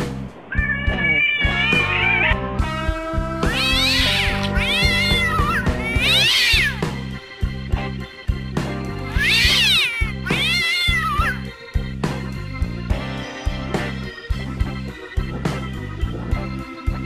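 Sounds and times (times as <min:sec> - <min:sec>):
background music with bass line: 0:00.0 - 0:17.0
cat meowing: 0:00.5 - 0:06.9, 0:09.1 - 0:11.5.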